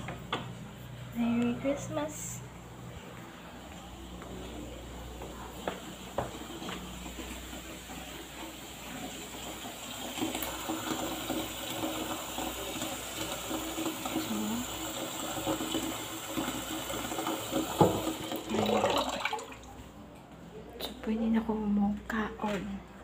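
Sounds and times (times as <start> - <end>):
tap water filling plastic pitcher: 5.6 - 19.9
knock: 17.8 - 18.1.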